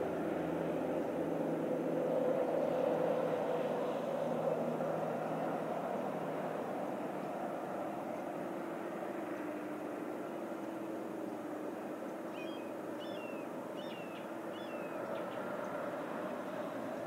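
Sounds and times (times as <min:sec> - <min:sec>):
outdoor background rumble: 0:00.0 - 0:17.0
small bird chirping: 0:12.4 - 0:15.3.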